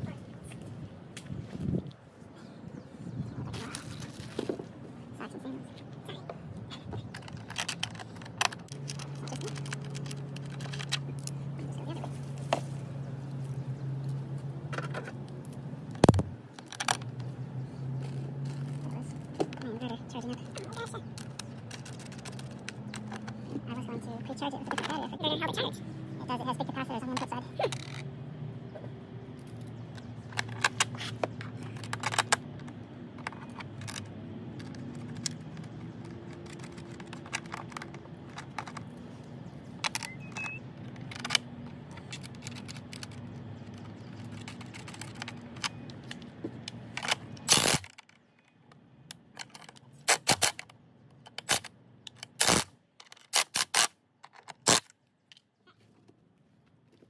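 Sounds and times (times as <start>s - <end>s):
metallic clicks of nuts and washers: 7.0s - 11.4s, 29.3s - 39.0s, 39.8s - 55.5s.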